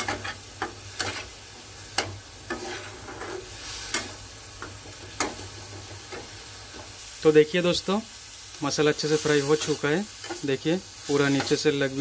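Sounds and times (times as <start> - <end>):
spatula scraping pan: 0.0 - 6.4
paste sizzling in hot oil: 0.0 - 12.0.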